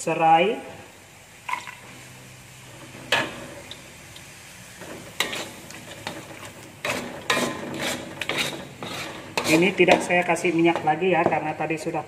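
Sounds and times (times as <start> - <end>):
spatula scraping wok: 4.6 - 11.4.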